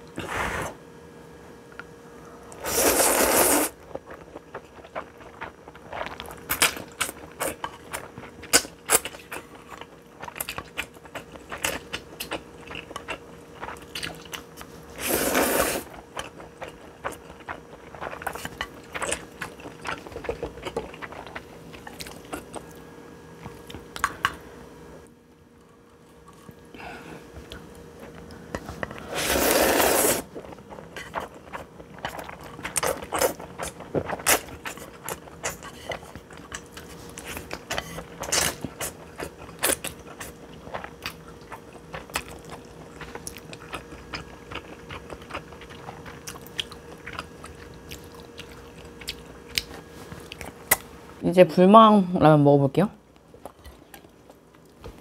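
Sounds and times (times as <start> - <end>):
person slurping noodles: 0.2 - 0.8, 2.6 - 3.8, 15.0 - 15.9, 29.0 - 30.4
chewing: 3.8 - 14.8, 15.8 - 22.8, 27.4 - 50.9.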